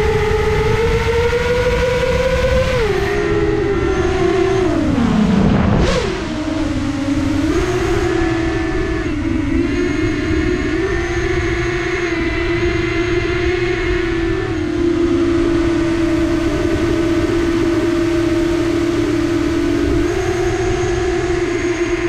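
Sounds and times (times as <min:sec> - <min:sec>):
quadcopter motors humming: 0:00.0 - 0:22.0
rough low rumble: 0:03.6 - 0:07.4.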